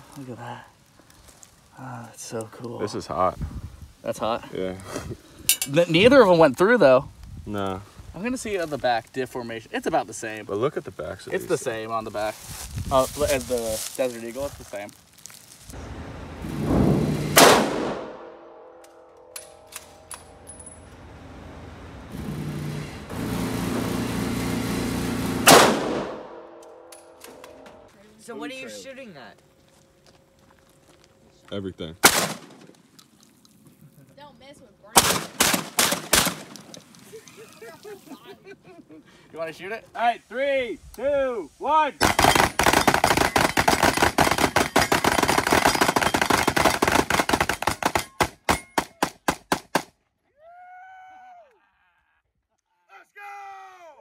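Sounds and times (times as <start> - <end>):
rifle shot: 16.5 - 18.7, 25.4 - 26.9, 32.0 - 32.6, 35.0 - 36.6, 42.0 - 49.9.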